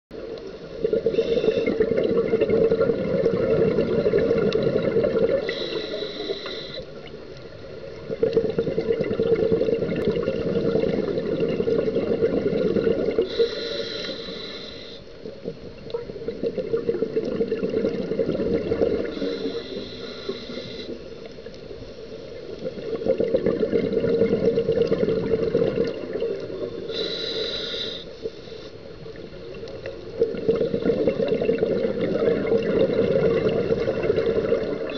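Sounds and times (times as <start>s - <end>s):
diver breathing through regulator: 5.4s - 6.9s, 13.2s - 15.1s, 19.0s - 21.0s, 26.9s - 28.7s.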